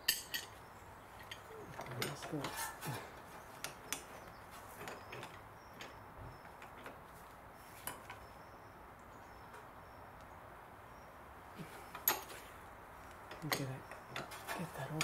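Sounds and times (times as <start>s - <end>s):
metal hand tools clinking: 0.0s - 0.6s.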